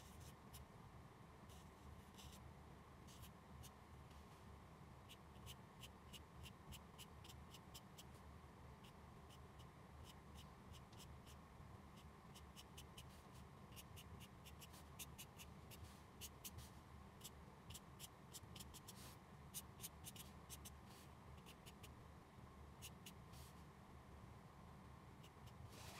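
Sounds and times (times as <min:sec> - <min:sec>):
faint low hum: 0:00.0 - 0:25.9
marker scratching on paper: 0:01.5 - 0:02.4, 0:03.1 - 0:03.3, 0:05.1 - 0:08.1, 0:08.8 - 0:11.4, 0:12.0 - 0:21.9, 0:22.8 - 0:23.6, 0:25.2 - 0:25.9.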